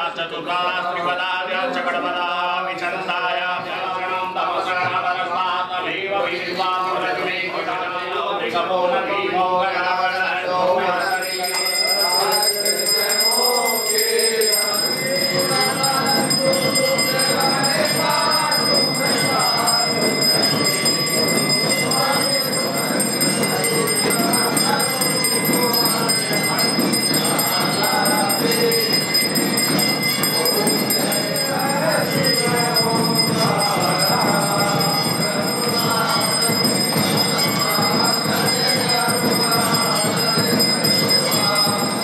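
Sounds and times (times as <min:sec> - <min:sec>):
voices singing together: 0:00.0 - 0:42.0
jingling percussion: 0:10.8 - 0:42.0.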